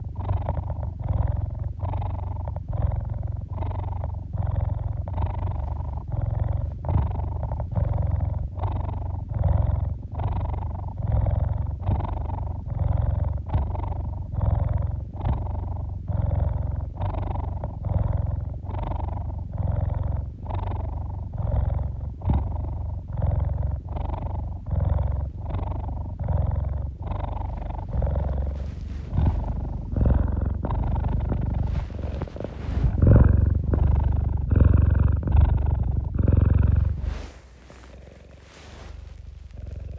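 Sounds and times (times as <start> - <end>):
cat purring: 0.0 - 39.9
blanket rustling: 27.5 - 34.0, 36.6 - 39.9.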